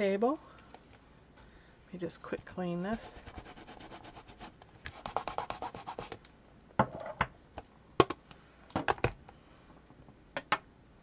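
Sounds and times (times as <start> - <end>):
stamp being scrubbed: 2.9 - 6.2.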